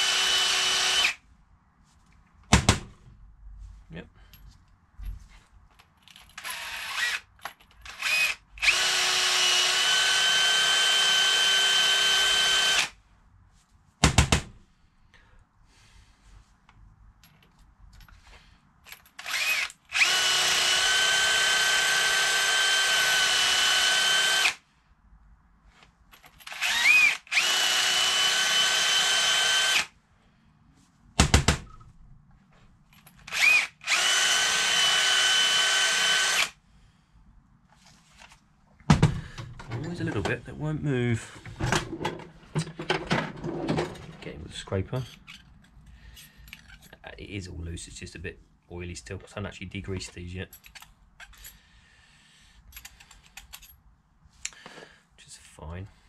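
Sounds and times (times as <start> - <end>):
cordless drill whining: 0.0 - 1.2, 6.4 - 13.0, 19.2 - 24.6, 26.4 - 29.9, 33.3 - 36.6.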